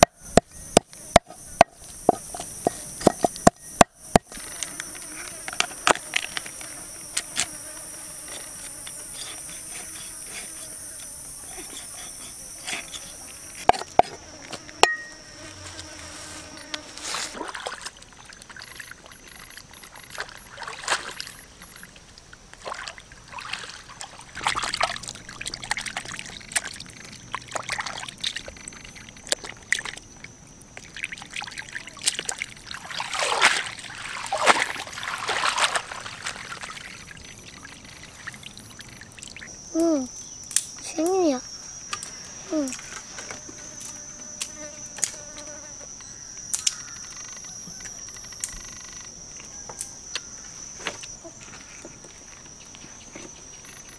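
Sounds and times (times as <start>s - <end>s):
insects buzzing: 0.0s - 53.9s
water splashing and sloshing: 17.1s - 39.5s.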